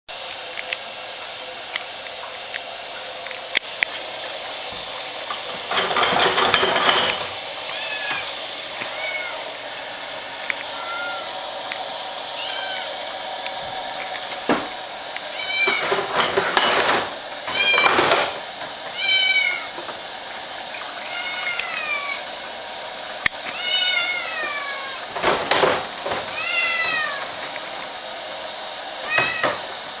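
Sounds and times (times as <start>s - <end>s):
water running in sink: 0.1s - 30.0s
kitten meowing: 7.7s - 9.6s, 10.7s - 11.4s, 12.4s - 13.0s, 15.3s - 15.8s, 18.9s - 19.7s, 21.0s - 22.3s, 23.5s - 25.0s, 26.3s - 27.3s, 29.0s - 29.6s.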